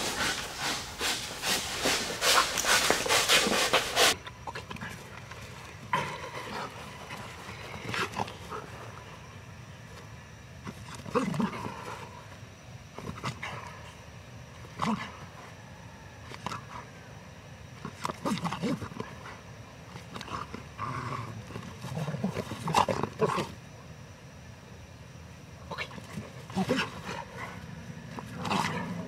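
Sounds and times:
dog growling: 25.7s - 29.0s.

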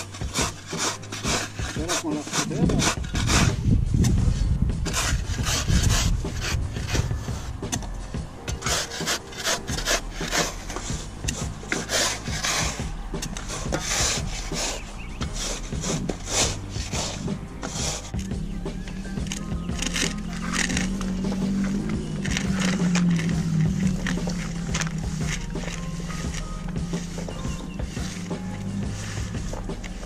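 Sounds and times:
shovels scraping sandy soil: 0.0s - 30.0s
low steady hum: 12.6s - 30.0s.

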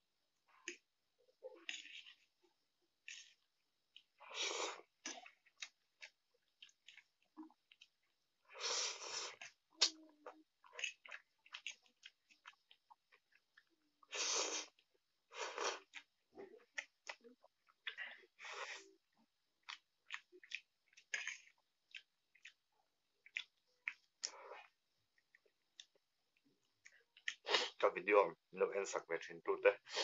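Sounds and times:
wet chewing and lip smacks: 0.6s - 27.7s
noodle slurps: 3.0s - 5.7s, 8.5s - 9.9s, 14.0s - 16.0s.

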